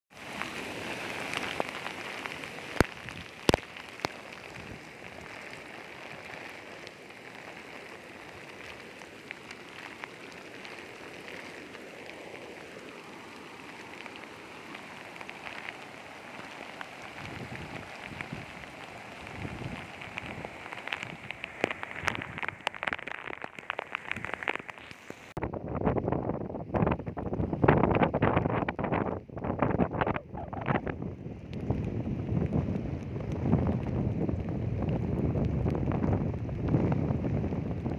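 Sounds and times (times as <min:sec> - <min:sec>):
floodwater rushing: 0:00.1 - 0:25.4
wind buffeting microphone: 0:00.3 - 0:11.4, 0:15.1 - 0:24.6, 0:25.4 - 0:37.9.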